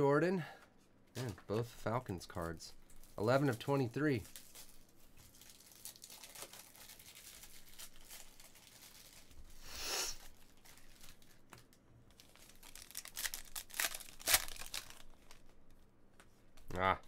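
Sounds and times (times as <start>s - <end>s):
foil wrappers crinkling and tearing: 2.3s - 15.6s.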